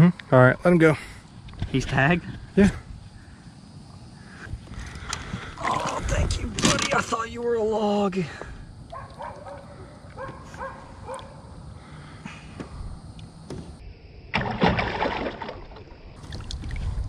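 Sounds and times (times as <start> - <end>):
water splashing beside boat: 14.3 - 17.0.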